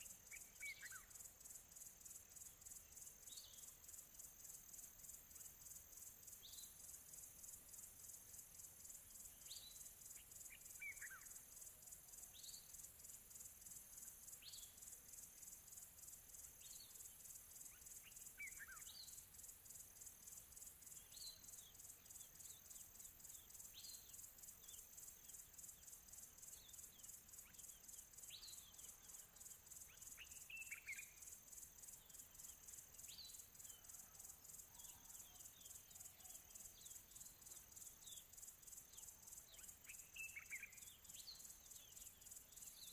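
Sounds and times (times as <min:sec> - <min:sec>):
bird chirps: 0:00.0 - 0:01.2, 0:09.1 - 0:11.4, 0:16.6 - 0:19.3, 0:20.5 - 0:42.9
high insect trill: 0:00.0 - 0:42.9.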